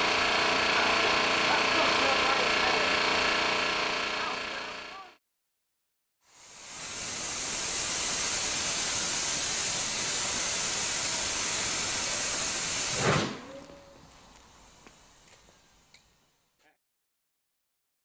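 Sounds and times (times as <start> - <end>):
compressed air hissing: 6.3 - 13.5.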